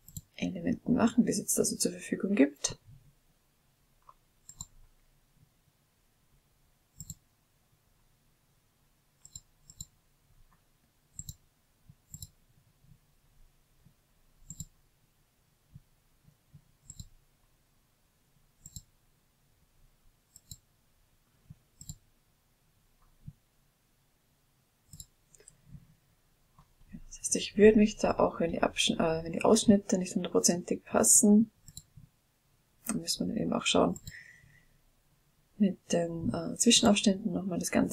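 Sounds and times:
computer mouse clicks: 0:00.0 - 0:00.4, 0:04.0 - 0:04.8, 0:06.9 - 0:07.2, 0:09.2 - 0:11.4, 0:12.0 - 0:12.4, 0:14.4 - 0:14.8, 0:16.8 - 0:17.2, 0:18.6 - 0:18.9, 0:20.3 - 0:20.7, 0:21.8 - 0:22.0, 0:24.9 - 0:25.6, 0:31.6 - 0:32.1, 0:34.0 - 0:34.3.

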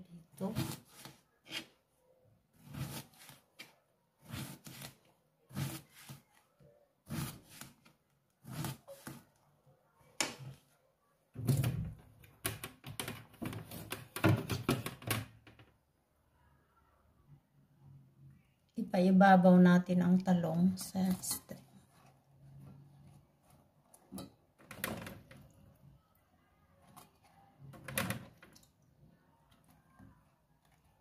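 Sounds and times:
knife cutting on plastic board: 0:00.4 - 0:01.8, 0:02.6 - 0:06.4, 0:07.0 - 0:09.4.

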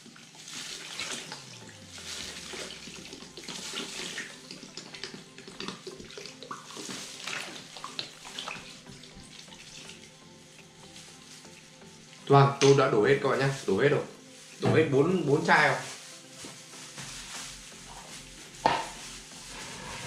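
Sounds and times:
soda pouring from plastic bottle: 0:00.0 - 0:10.1
liquid splashing into basin: 0:00.4 - 0:10.0
shirt sloshing in liquid: 0:00.4 - 0:10.0.

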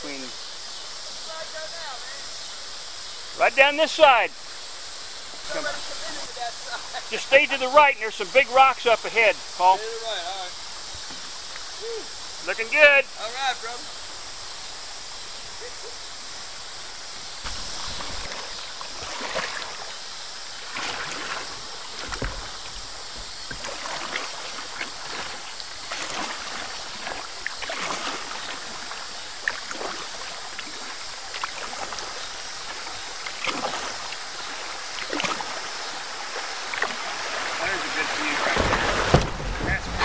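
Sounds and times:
paddle splashes: 0:17.4 - 0:40.0
river water rushing over rocks: 0:17.4 - 0:40.0
water slapping a hull: 0:17.5 - 0:20.0, 0:20.6 - 0:40.0.

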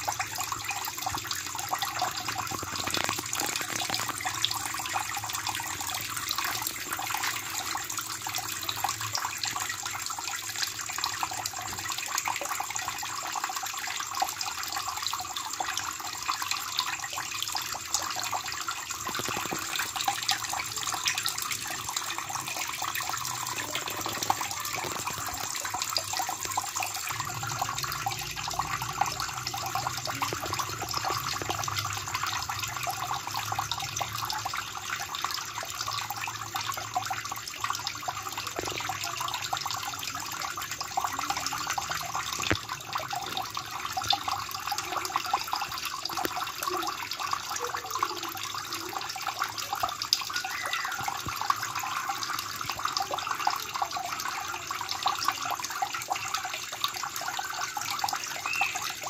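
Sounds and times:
small splashes and drips: 0:00.0 - 0:59.0
water pouring into pond: 0:00.0 - 0:59.0.

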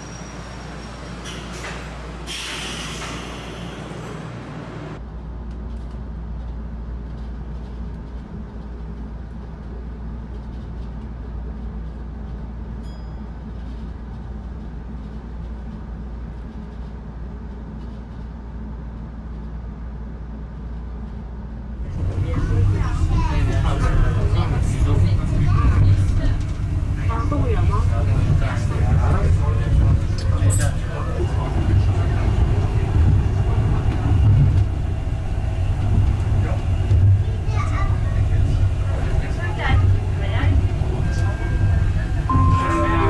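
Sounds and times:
monorail car humming and rumbling: 0:00.0 - 0:43.0
air hiss: 0:02.3 - 0:03.8.

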